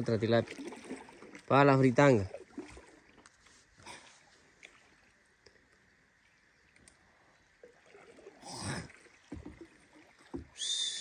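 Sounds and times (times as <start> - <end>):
river water splashing: 0.0 - 11.0
low thuds of water: 7.6 - 11.0
hiss with falling whistle: 10.6 - 11.0.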